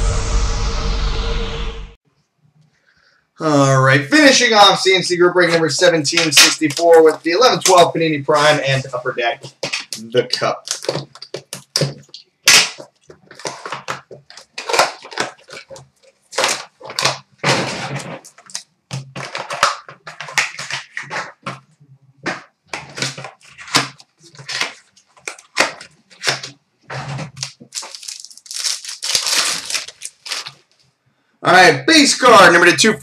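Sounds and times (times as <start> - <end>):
sharp cardboard snaps: 9.4 - 15.6
wrapper tearing and rustling: 9.4 - 21.5, 22.7 - 30.7.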